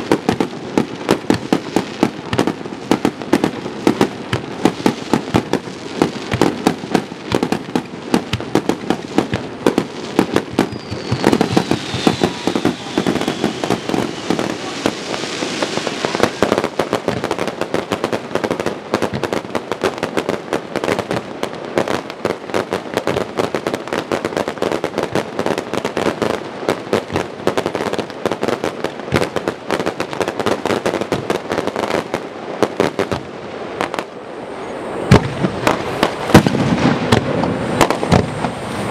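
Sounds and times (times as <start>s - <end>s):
fireworks bangs and crackles: 0.0s - 38.9s
firework whistle falling in pitch: 10.5s - 16.8s.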